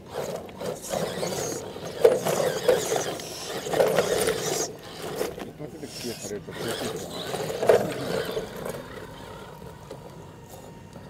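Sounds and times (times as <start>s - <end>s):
electric motor and gears whirring: 0.0s - 11.0s.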